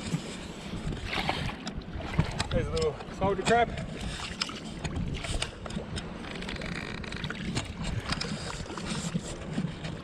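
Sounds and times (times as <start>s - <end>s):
feet splashing through water: 1.0s - 2.5s.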